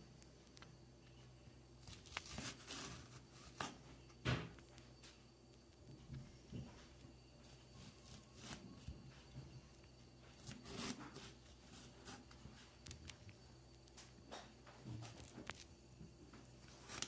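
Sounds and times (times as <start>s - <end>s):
handsaw scraping through orange: 10.4s - 12.3s.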